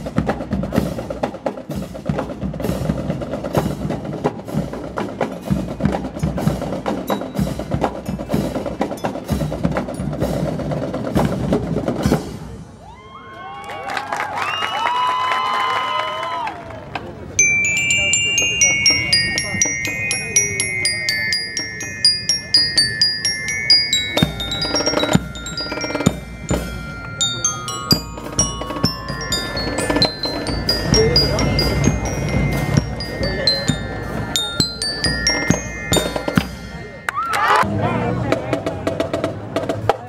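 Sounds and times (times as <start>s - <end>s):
bell lyre melody: 17.4s - 37.7s
drum hits: 21.4s - 36.9s.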